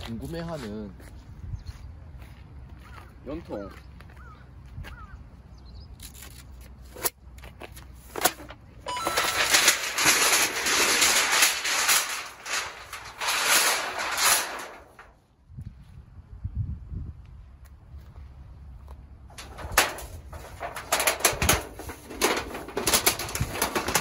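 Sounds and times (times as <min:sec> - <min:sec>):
sheet metal crinkling and rattling: 0:08.0 - 0:15.2, 0:19.3 - 0:24.0.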